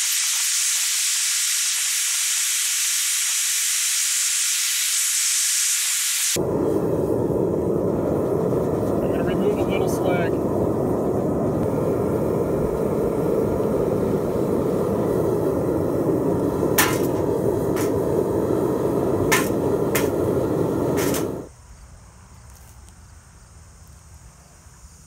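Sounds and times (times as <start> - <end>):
furnace burner roaring: 6.1 - 21.5.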